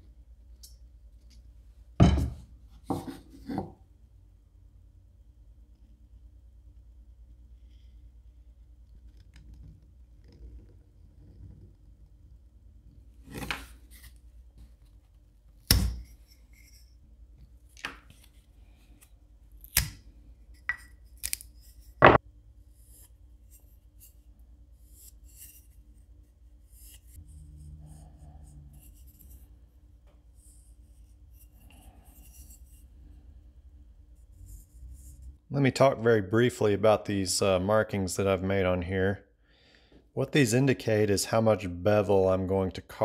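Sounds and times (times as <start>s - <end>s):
knocks of tools on workbench: 2.0s - 3.7s.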